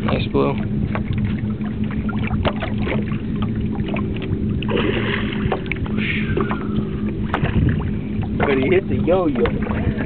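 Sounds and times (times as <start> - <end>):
boat engine humming: 0.0 - 10.0
fish splashing at water surface: 0.9 - 8.8.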